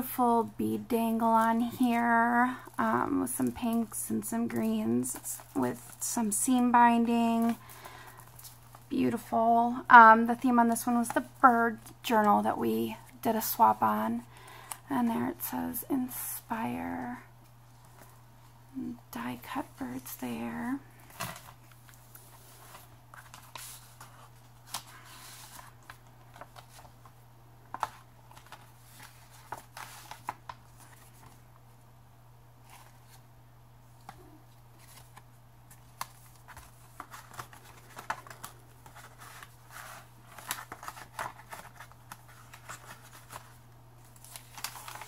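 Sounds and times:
paper pages rustling: 20.9 - 31.4, 32.6 - 33.2, 34.0 - 45.0.

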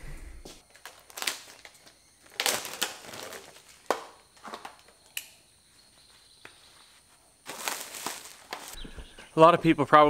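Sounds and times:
plastic wrapping crinkling: 0.7 - 5.0, 6.8 - 8.8.

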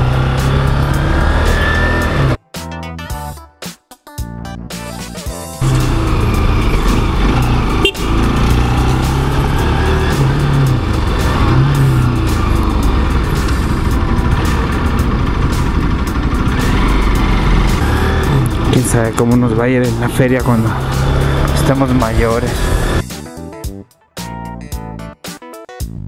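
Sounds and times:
motorcycle engine running: 0.0 - 2.4, 5.6 - 23.0.

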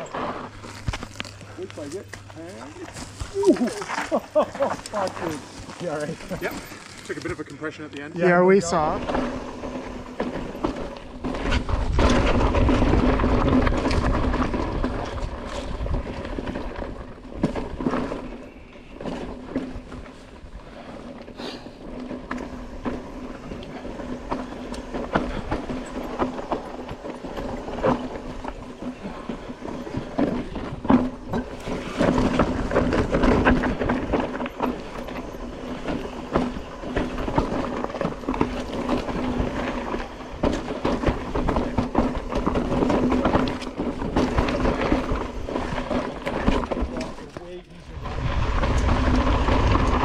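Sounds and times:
bike rattling over rocks: 0.0 - 50.0.

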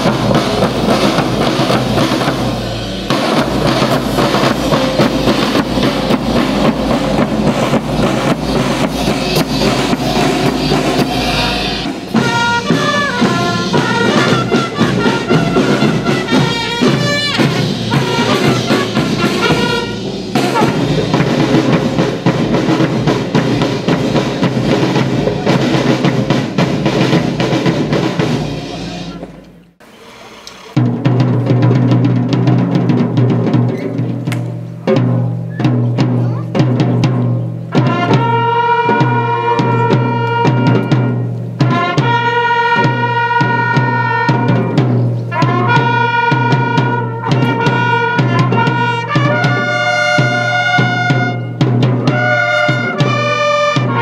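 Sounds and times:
snare and bass drums marching: 0.0 - 30.0, 30.6 - 54.0
bugles and trumpets playing tune: 0.0 - 30.8, 37.7 - 54.0.

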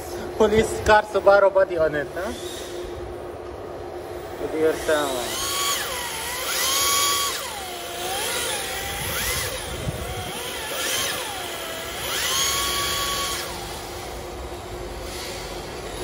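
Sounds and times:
electric motor whining: 4.7 - 16.0.

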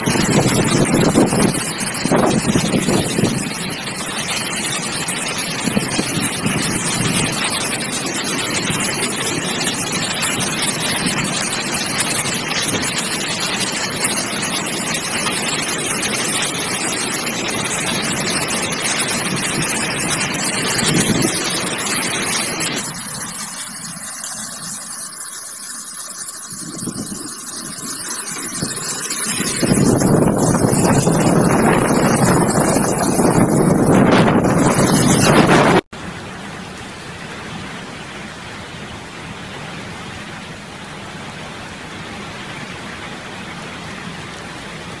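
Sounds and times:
wind buffeting microphone: 0.0 - 24.9, 26.4 - 35.8
heavy rain: 0.0 - 45.0.

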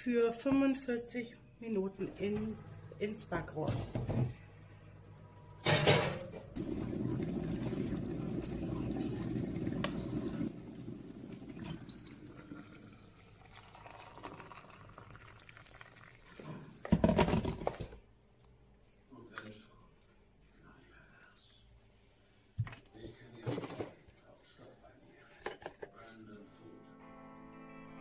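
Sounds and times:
electric kettle rumbling: 2.0 - 16.2
water pouring into a mug: 6.6 - 16.8.

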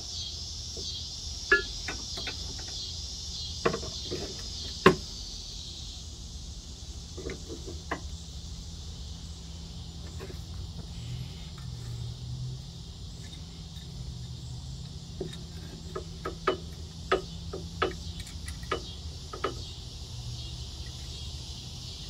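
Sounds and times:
wrench clinking on nut: 1.5 - 2.4.

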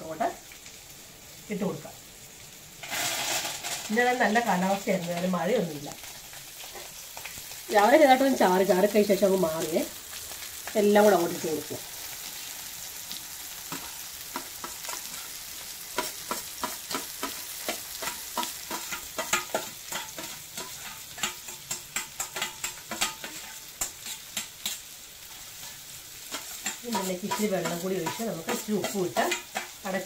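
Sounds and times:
food frying in hot oil: 0.0 - 30.0
metal spoon scraping pan: 16.0 - 29.8.

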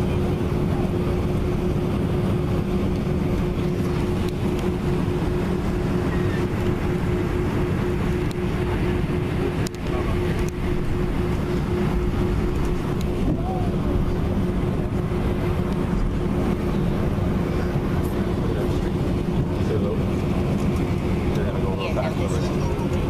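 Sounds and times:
even hum: 0.0 - 23.0
low engine rumble in cabin: 0.0 - 23.0.

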